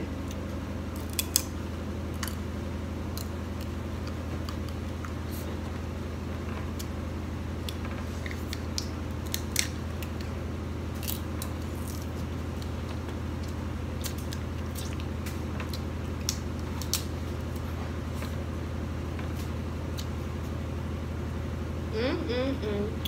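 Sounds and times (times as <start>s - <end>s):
steady low hum: 0.0s - 23.0s
crab shells cracking: 0.3s - 2.4s, 3.1s - 5.2s, 7.6s - 10.3s, 10.9s - 17.2s.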